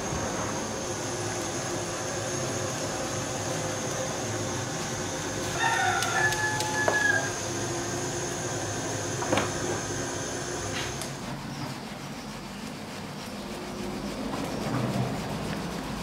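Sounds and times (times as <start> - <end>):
steady background noise: 0.0 - 16.0
rooster crowing: 5.4 - 7.6.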